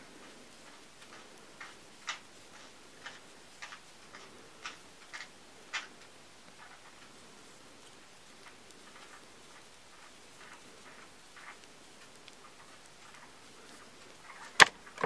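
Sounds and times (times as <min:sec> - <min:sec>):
metal knitting needles clicking: 0:00.3 - 0:07.2.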